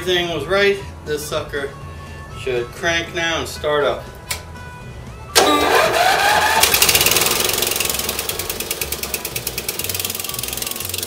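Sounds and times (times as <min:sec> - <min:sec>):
electric starter whining: 0:05.3 - 0:11.0
small engine running: 0:05.4 - 0:11.0.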